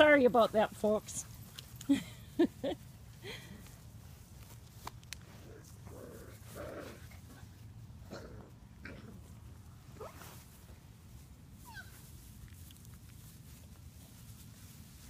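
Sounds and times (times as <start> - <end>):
puppies yipping and whining: 11.6 - 12.1.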